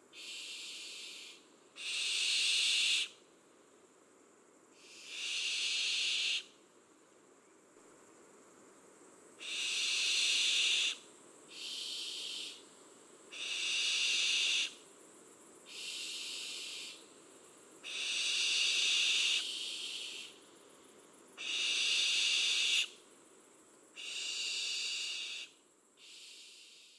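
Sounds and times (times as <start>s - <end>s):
high drawn-out animal calls: 0.2s - 3.2s, 4.8s - 6.5s, 9.4s - 12.6s, 13.3s - 14.8s, 17.8s - 20.3s, 21.4s - 23.0s, 24.0s - 26.8s.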